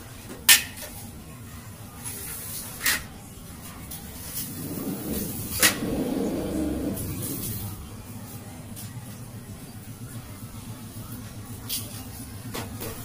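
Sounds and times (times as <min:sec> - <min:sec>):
low muddled noise: 0:04.2 - 0:07.9
sliding door frame clicks: 0:04.4 - 0:07.6.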